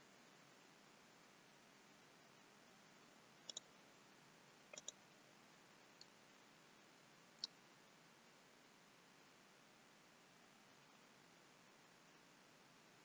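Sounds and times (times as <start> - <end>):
faint steady hiss: 0.0 - 13.0
mouse button clicks: 4.8 - 5.0.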